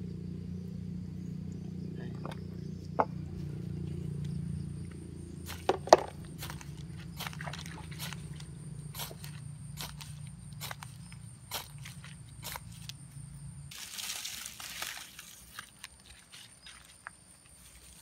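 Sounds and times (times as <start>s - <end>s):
steady low hum: 0.0s - 13.8s
dry grass rustling and crackling: 13.7s - 18.0s.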